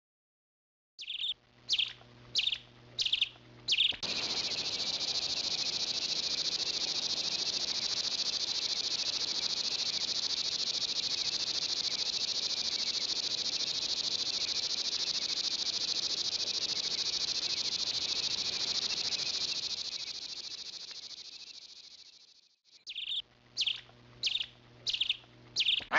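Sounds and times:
high-pitched insect trill: 0:02.4 - 0:25.8.

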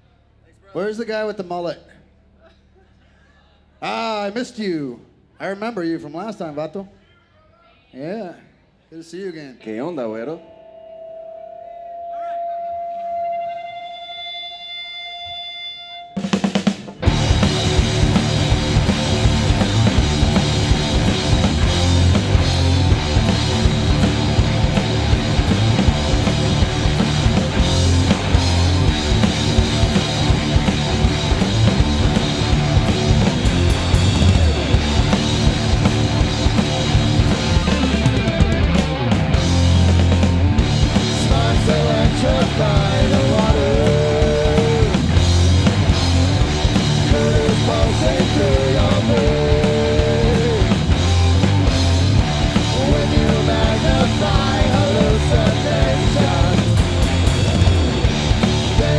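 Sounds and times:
distorted electric guitars: 0:12.5 - 0:58.9
bass guitar: 0:13.4 - 0:58.9
drum kit: 0:16.1 - 0:58.9.

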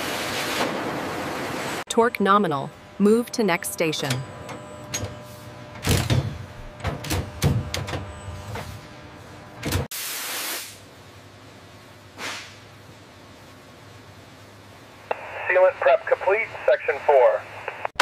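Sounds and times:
low hum: 0:01.9 - 0:09.9
machine clicking and knocking: 0:05.8 - 0:08.1
air hiss: 0:09.9 - 0:10.8.

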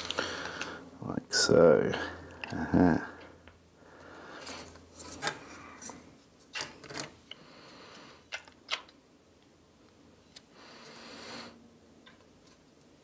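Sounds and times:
plastic parts scraping: 0:00.0 - 0:00.8
plastic parts clicking into place: 0:08.3 - 0:09.0.

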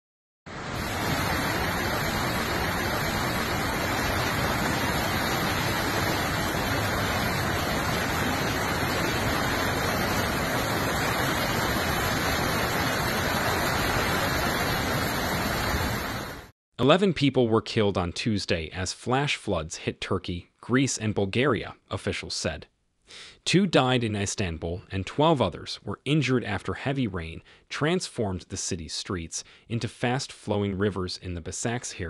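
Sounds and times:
floodwater rushing: 0:00.5 - 0:16.5.

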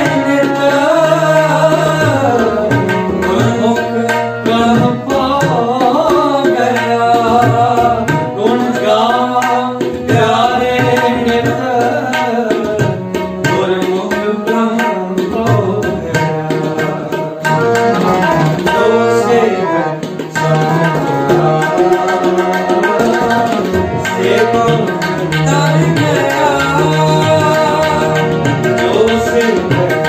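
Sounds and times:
tabla playing a rhythm: 0:00.0 - 0:30.0
harmonium sustained notes: 0:13.3 - 0:30.0.

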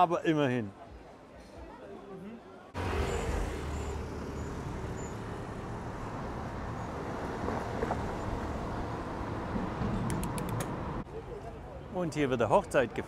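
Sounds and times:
road traffic: 0:02.7 - 0:12.0.

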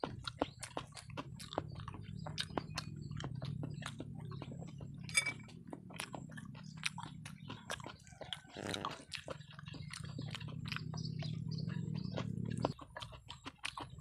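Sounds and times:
person chewing and lip-smacking: 0:00.0 - 0:14.0
steady low hum: 0:01.2 - 0:07.8.

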